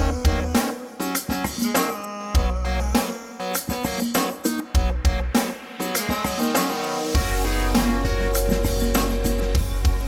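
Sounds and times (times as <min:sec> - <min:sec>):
deep bass: 0:00.0 - 0:00.6, 0:02.4 - 0:03.0, 0:04.8 - 0:05.4, 0:07.2 - 0:10.0
guitar and drums music: 0:00.0 - 0:10.0.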